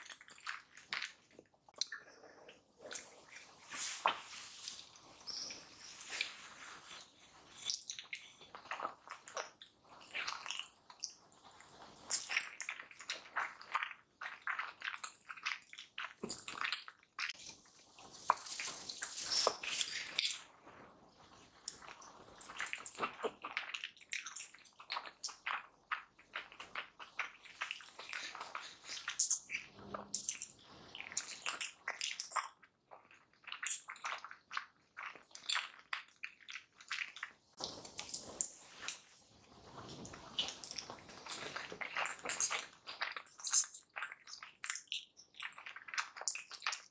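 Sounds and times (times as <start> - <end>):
close-miked wet chewing: 21.3 - 46.9.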